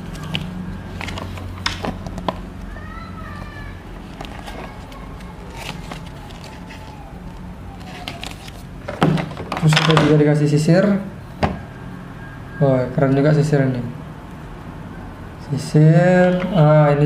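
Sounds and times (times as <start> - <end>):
paper rustling and crinkling: 0.0 - 2.4, 4.0 - 9.7.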